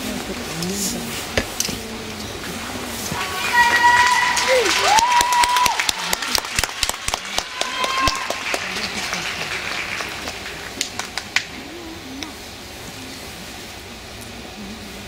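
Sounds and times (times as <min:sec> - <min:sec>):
crowd murmur: 0:00.0 - 0:15.0
audience applause: 0:03.0 - 0:11.8.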